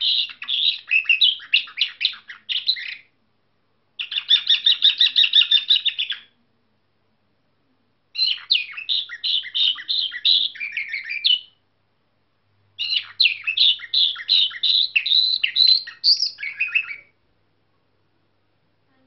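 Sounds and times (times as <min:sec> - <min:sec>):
canary singing: 0:00.0 - 0:03.2, 0:04.0 - 0:06.4, 0:08.1 - 0:11.6, 0:12.8 - 0:17.2.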